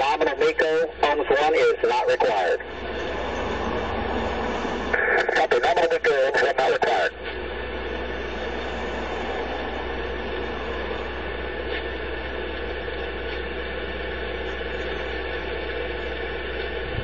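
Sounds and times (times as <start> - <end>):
low hum: 0.0 - 17.0.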